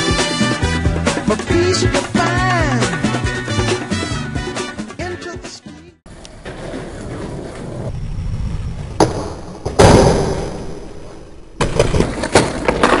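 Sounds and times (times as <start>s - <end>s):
skateboard wheels rolling on tiles: 6.1s - 9.8s, 11.0s - 13.0s.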